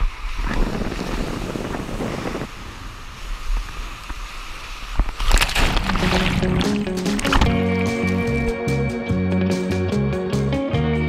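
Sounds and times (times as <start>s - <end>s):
wind rumbling on microphone: 0.0s - 8.5s
sea surf washing: 0.0s - 8.7s.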